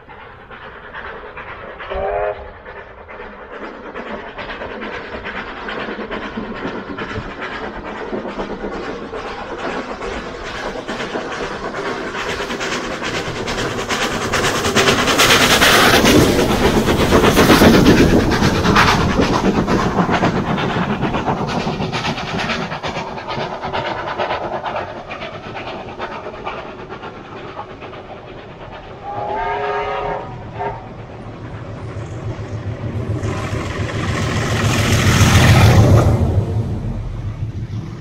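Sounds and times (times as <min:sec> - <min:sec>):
steam locomotive passing: 0:00.0 - 0:38.0
train wheels clattering on rails: 0:00.0 - 0:38.0
steam whistle blasts: 0:01.9 - 0:02.4, 0:29.0 - 0:30.9.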